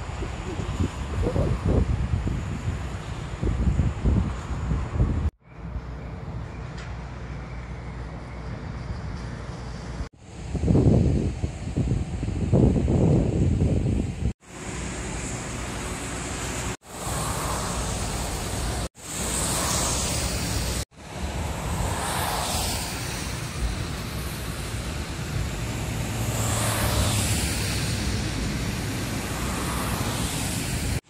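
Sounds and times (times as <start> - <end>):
tyres hissing on wet road: 14.4 - 31.0.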